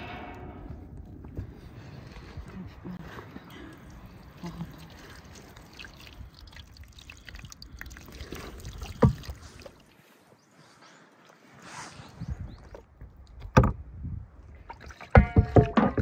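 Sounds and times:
water pouring and splashing: 3.0 - 10.2, 14.5 - 16.0.

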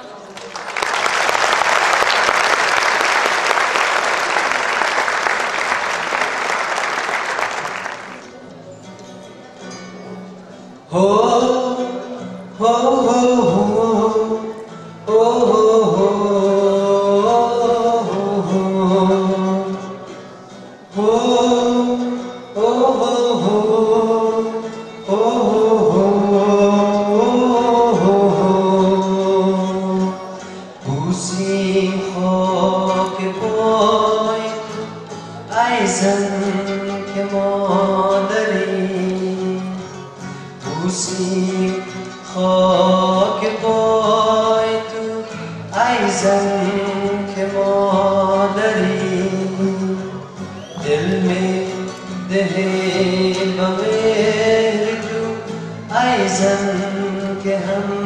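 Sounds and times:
person singing with instruments: 0.0 - 58.0
audience applause: 0.3 - 8.4.

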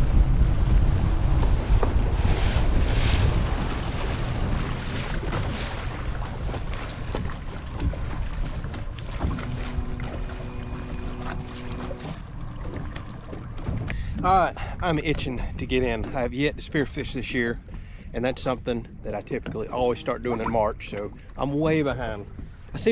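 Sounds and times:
low rumble: 0.0 - 15.6
water washing against boat hull: 0.0 - 22.9
wind buffeting microphone: 0.0 - 22.9.

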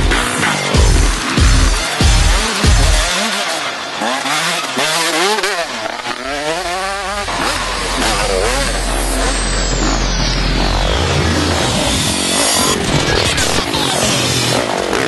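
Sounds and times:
dirt bike engine revving: 0.0 - 15.0
steady deep hum: 6.2 - 13.8.

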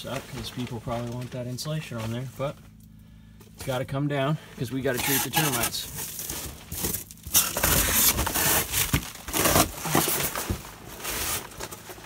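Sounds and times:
foam board scraping and cracking: 4.9 - 12.0.

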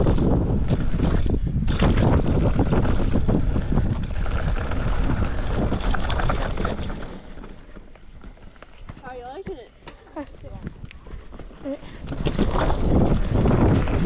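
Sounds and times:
wind buffeting microphone: 0.0 - 7.4, 10.3 - 14.0
mountain bike rattling on rough trail: 0.0 - 9.5, 10.1 - 14.0.

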